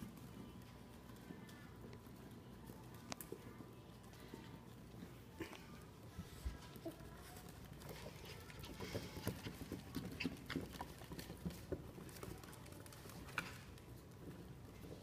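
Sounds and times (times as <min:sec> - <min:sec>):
paws clicking on hardwood floor: 0:06.0 - 0:15.0.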